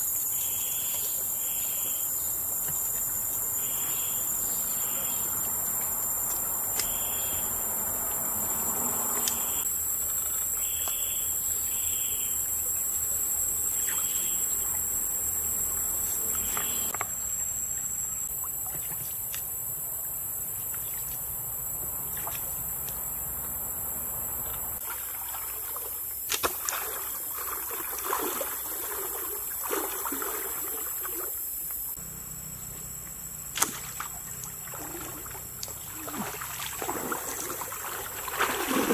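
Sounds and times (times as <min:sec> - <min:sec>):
insects droning: 0:00.0 - 0:38.9
feet wading through water: 0:24.8 - 0:31.4, 0:33.6 - 0:38.9.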